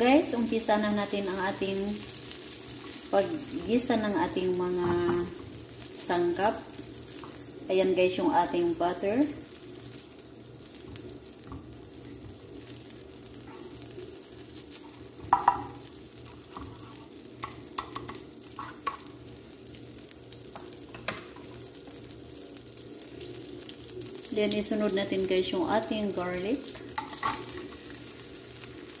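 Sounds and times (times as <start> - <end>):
butter sizzling in a pan: 0.0 - 29.0
spatula scraping a pan: 16.5 - 17.2, 18.5 - 19.1.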